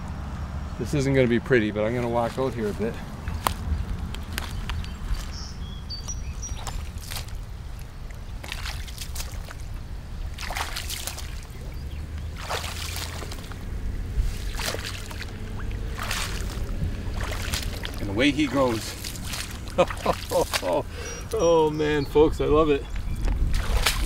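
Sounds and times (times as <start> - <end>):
steady low rumble: 0.0 - 24.0
shallow water splashing: 1.9 - 21.6, 23.2 - 24.0.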